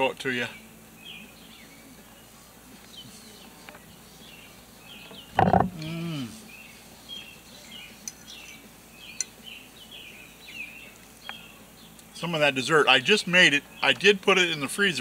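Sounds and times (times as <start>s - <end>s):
birds chirping and singing: 0.0s - 15.0s
short throaty falling call: 5.5s - 6.5s.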